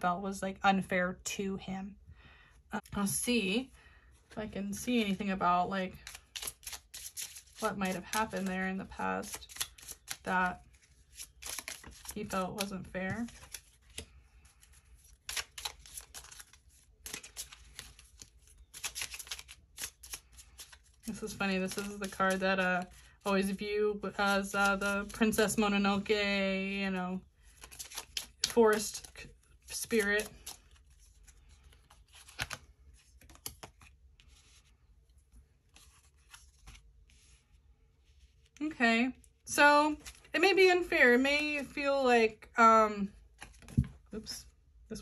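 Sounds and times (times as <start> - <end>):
cards being shuffled: 5.9 - 25.6, 27.4 - 34.9, 35.6 - 38.5, 39.9 - 40.3, 43.3 - 44.0.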